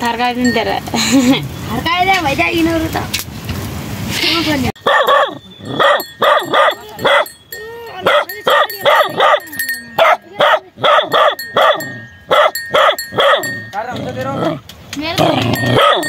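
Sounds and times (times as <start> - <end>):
dog barking: 4.8 - 7.4, 8.0 - 13.6, 15.6 - 16.0.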